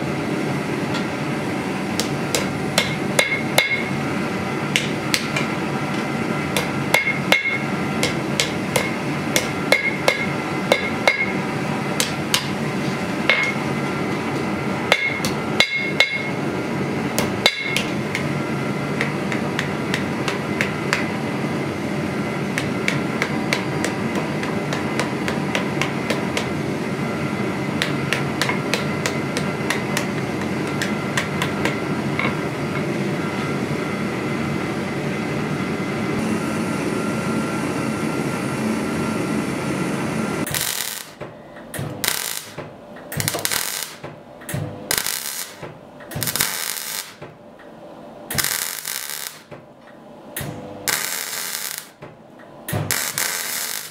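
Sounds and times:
steady background noise: 0:00.0 - 0:53.9
hammer striking steel on anvil: 0:02.0 - 0:04.0, 0:04.7 - 0:11.4, 0:12.0 - 0:12.6, 0:13.2 - 0:13.7, 0:14.9 - 0:16.4, 0:17.2 - 0:18.3, 0:22.6 - 0:26.5, 0:27.8 - 0:32.9.

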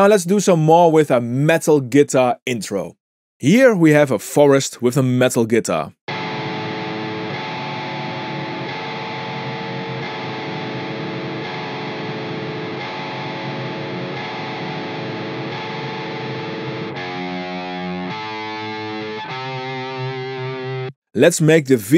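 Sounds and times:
distorted electric guitar chords: 0:06.1 - 0:21.0.

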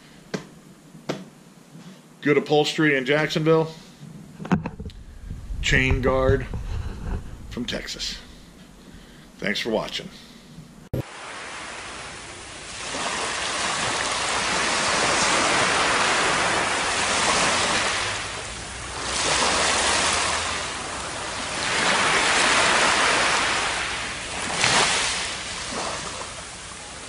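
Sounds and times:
sharp wave splash: 0:11.0 - 0:27.0
waves washing on beach: 0:11.0 - 0:27.0.

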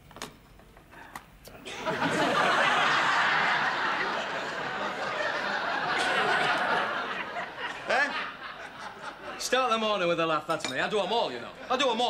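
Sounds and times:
studio audience laughing: 0:01.6 - 0:09.9.

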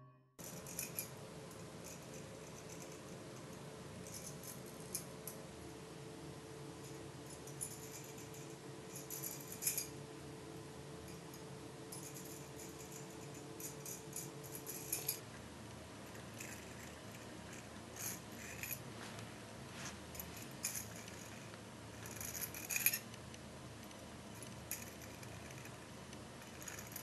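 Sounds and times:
low room hum: 0:00.0 - 0:27.0.

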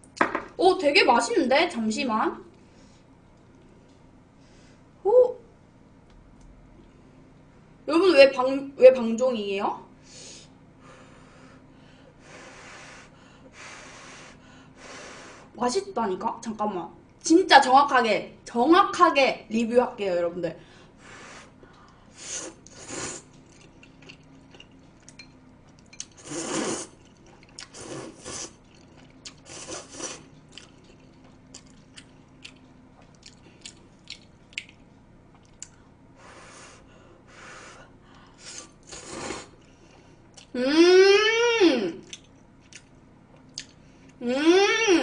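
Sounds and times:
person slurping noodles: 0:22.2 - 0:23.3, 0:26.2 - 0:27.0, 0:27.6 - 0:30.3, 0:38.4 - 0:39.6.

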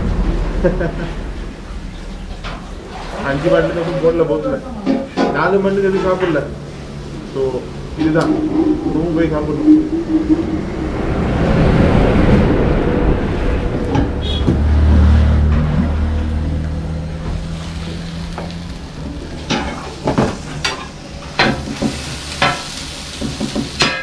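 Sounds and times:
low engine-like hum: 0:00.0 - 0:05.2, 0:06.4 - 0:21.4
food sizzling on griddle: 0:17.3 - 0:24.0.

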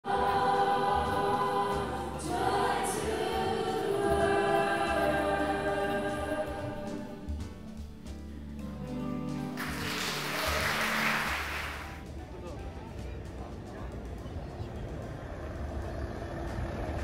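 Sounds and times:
choir singing: 0:00.0 - 0:07.5.

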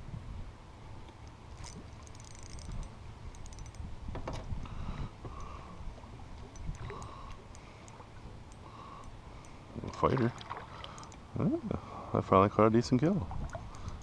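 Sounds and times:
wind rumble on microphone: 0:00.0 - 0:07.5, 0:12.9 - 0:14.0
fishing reel clicking: 0:01.2 - 0:03.9, 0:06.6 - 0:09.2, 0:13.5 - 0:14.0.

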